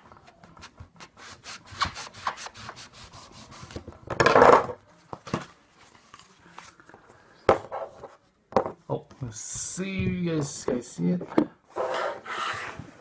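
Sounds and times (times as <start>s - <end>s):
knife sawing and scraping: 11.7s - 12.8s.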